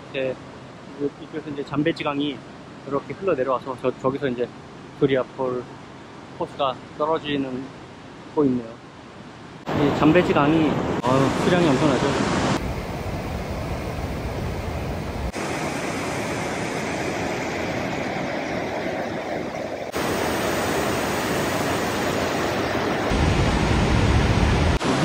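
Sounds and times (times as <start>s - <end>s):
white water rushing over rocks: 15.4s - 25.0s.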